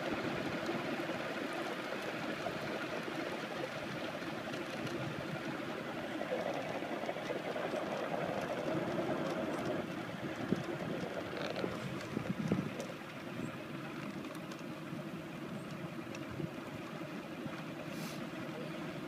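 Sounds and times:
wheelchair tyres on asphalt: 3.6s - 18.8s.

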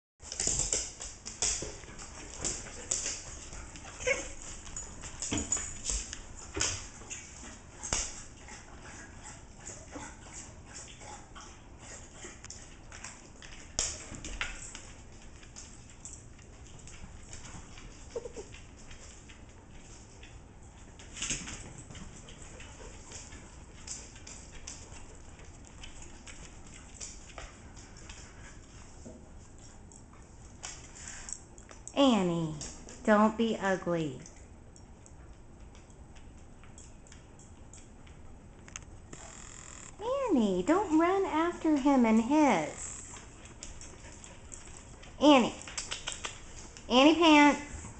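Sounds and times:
animal claws clicking on wood floor: 0.2s - 8.2s, 42.9s - 46.9s.

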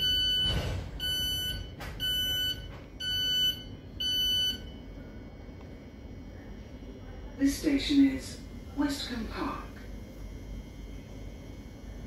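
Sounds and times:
train door alert beeping: 0.0s - 4.7s.

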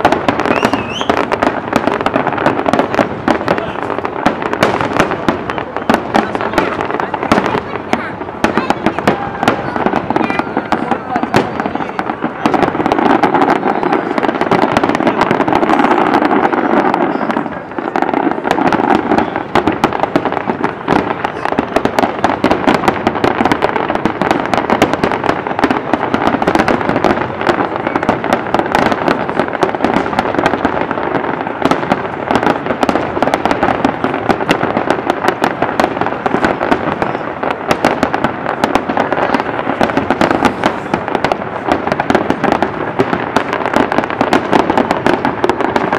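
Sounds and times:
fireworks shells bursting: 0.0s - 45.9s.

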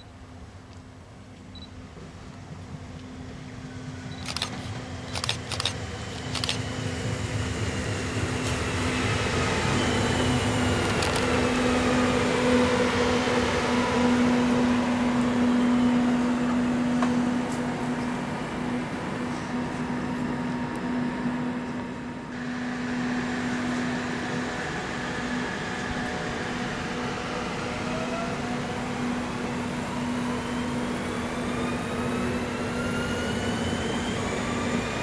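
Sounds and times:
electric train passing: 0.0s - 35.0s
sharp clicks: 4.2s - 6.6s.

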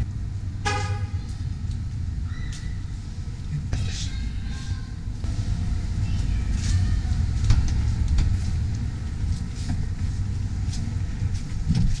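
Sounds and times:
low uneven rumble: 0.0s - 12.0s.

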